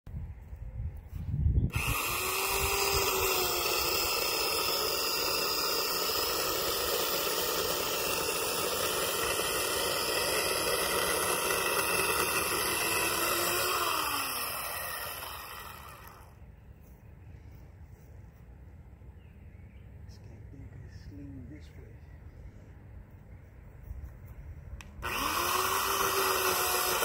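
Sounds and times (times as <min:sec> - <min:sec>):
electric chainsaw cutting tree: 0:01.7 - 0:16.4, 0:24.8 - 0:27.0.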